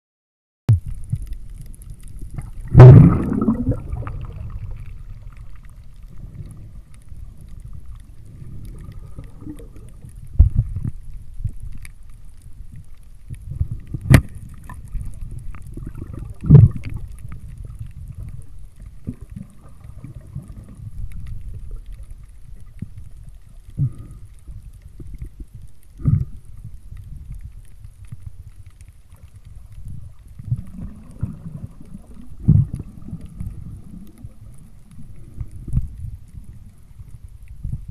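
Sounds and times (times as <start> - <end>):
muffled underwater rumble: 0.7 - 37.9
sharp knocks underwater: 2.4 - 4.6, 13.9 - 14.8, 15.8 - 17.0.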